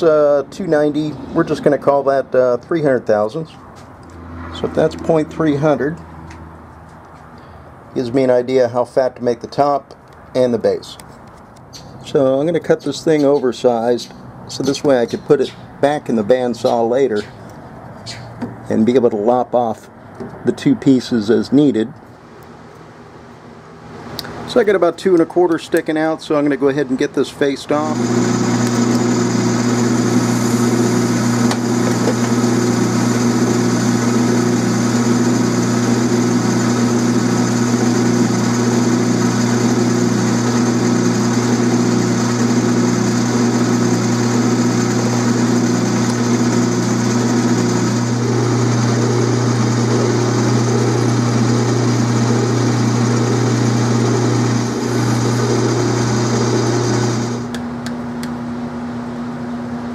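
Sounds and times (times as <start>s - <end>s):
lathe drilling into steel: 27.7s - 57.6s
metal lathe humming: 27.7s - 57.6s.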